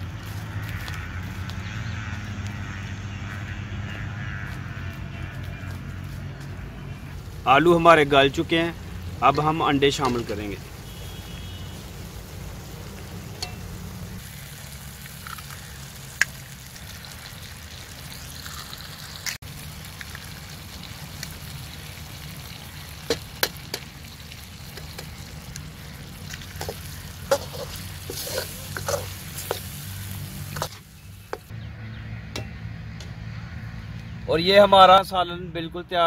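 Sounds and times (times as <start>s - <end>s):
curry sizzling and bubbling: 6.7s - 31.6s
ladle scraping a steel pan: 26.6s - 29.7s.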